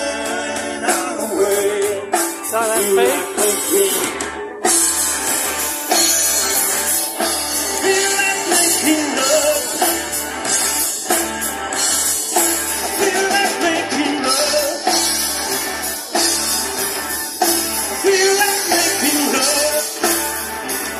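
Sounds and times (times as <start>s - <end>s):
person singing: 0.0s - 4.6s, 7.7s - 10.0s, 12.8s - 15.1s, 17.9s - 20.3s
drum kit: 0.0s - 20.9s
electric guitars: 0.0s - 20.9s.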